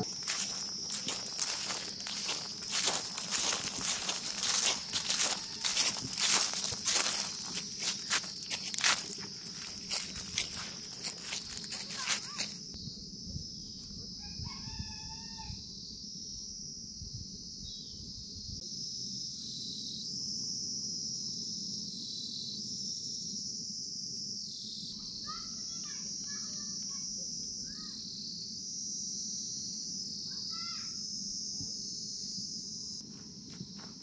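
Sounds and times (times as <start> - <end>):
high insect drone: 0.0 - 34.0
rooster crowing: 3.4 - 6.5, 14.1 - 15.6.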